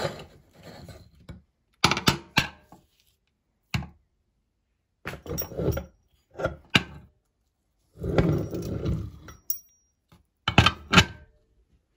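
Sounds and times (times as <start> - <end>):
metal clinks and knocks: 8.2 - 10.7.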